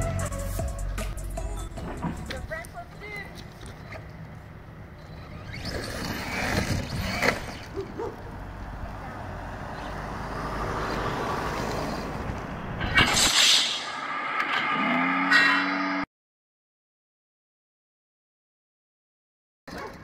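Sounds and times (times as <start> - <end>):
tyres crunching gravel: 5.3 - 9.5.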